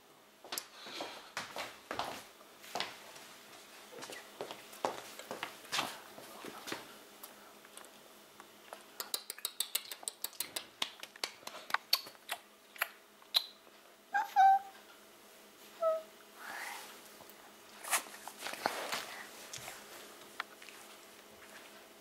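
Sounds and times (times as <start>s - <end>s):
puppy whining: 14.1s - 14.8s, 15.7s - 16.1s.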